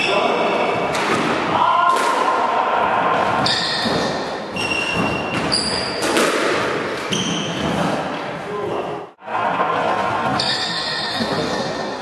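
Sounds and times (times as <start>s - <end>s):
squash ball knocks off racket and walls: 0.8s - 2.4s, 3.2s - 8.1s.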